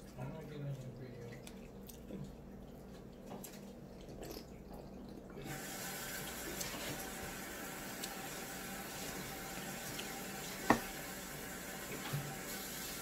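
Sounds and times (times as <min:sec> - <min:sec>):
tap water running: 0:05.4 - 0:13.0.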